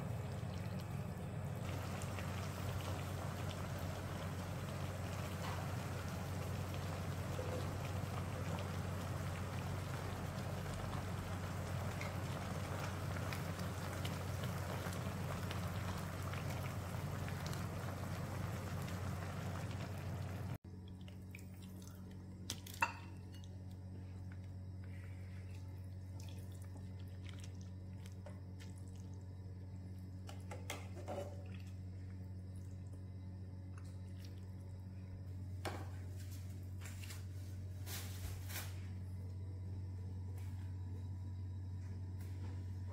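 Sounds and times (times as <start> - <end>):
soup boiling in a pot: 0.0 - 36.0
low hum: 0.0 - 42.9
soup ladled and dripping: 20.7 - 23.7, 25.4 - 29.2.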